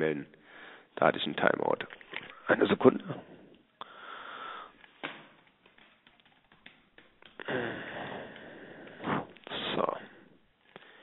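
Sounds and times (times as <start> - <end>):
soft breathy hiss: 3.1 - 5.1, 7.4 - 11.0
faint keyboard keystrokes: 4.8 - 7.5.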